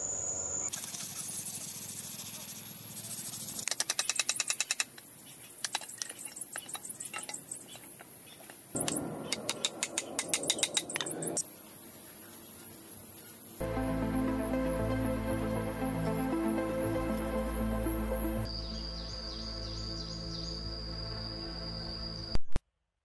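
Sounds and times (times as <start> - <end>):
high-pitched whine: 13.6 - 21.5.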